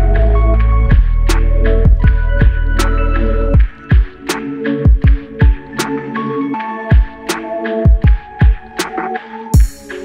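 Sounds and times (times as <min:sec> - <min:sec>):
low bass drone: 0:00.0 - 0:03.6
electronic music beat: 0:00.0 - 0:10.0.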